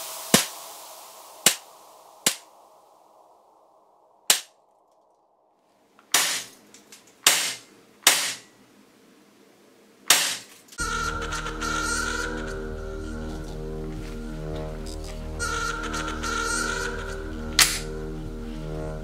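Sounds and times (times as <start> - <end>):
airsoft pistol shots: 6.2 - 6.5, 7.3 - 8.4.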